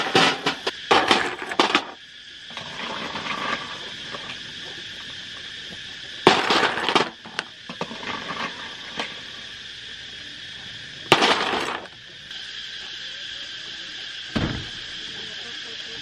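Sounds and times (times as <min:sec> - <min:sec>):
snail shells clattering on metal: 0:11.1 - 0:11.9.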